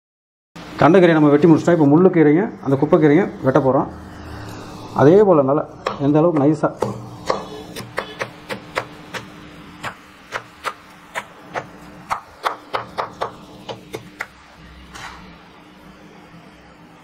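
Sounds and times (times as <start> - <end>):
knife chopping on wooden board: 5.8 - 14.3.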